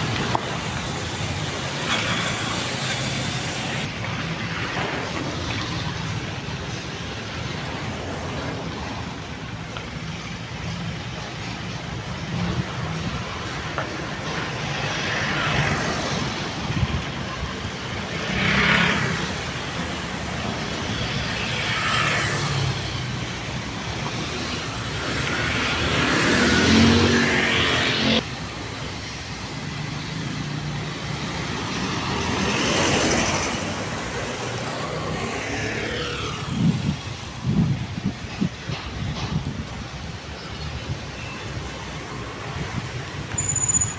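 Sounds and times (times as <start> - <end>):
cars passing: 0.0 - 43.9
steady traffic rumble: 0.0 - 43.9
motorcycles passing: 14.3 - 37.7.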